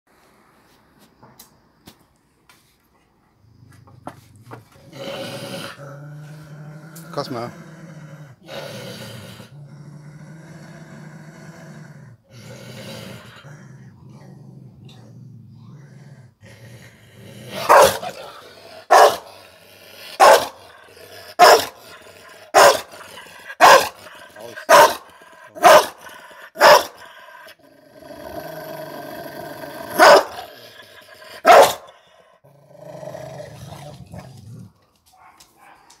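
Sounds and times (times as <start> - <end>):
dog snarling growl: 4.7 - 34.7
dog barking: 17.6 - 18.2, 18.9 - 19.3, 20.2 - 20.6, 21.4 - 21.8, 22.5 - 22.9, 23.6 - 24.0, 24.6 - 26.0, 26.6 - 27.0, 30.0 - 30.5, 31.4 - 31.9, 35.2 - 36.0.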